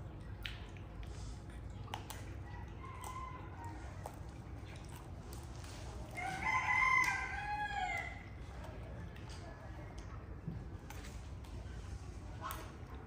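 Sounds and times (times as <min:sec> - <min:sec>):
low steady rumble: 0:00.0 - 0:13.0
rooster crowing: 0:06.2 - 0:08.2.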